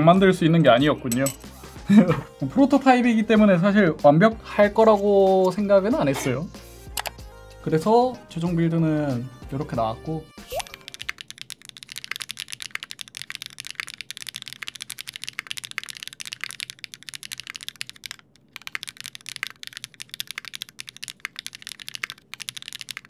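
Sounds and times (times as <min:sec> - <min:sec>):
mechanical keyboard typing: 0:07.0 - 0:07.2, 0:10.6 - 0:23.0.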